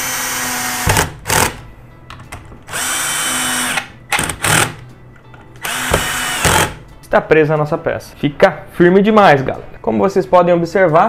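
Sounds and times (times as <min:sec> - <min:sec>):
drill driving screw: 0:00.0 - 0:01.6, 0:02.7 - 0:04.8, 0:05.6 - 0:06.8.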